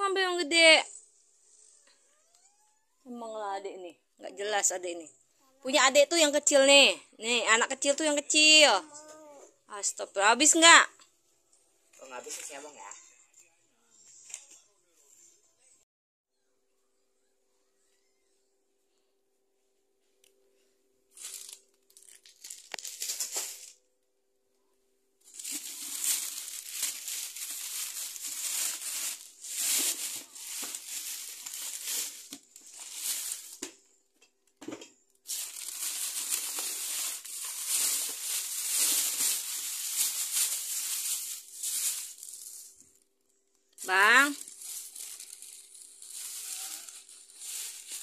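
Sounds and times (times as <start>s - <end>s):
plastic bags rustling: 21.1s - 23.8s, 25.2s - 33.9s, 35.2s - 43.0s, 43.8s - 48.0s.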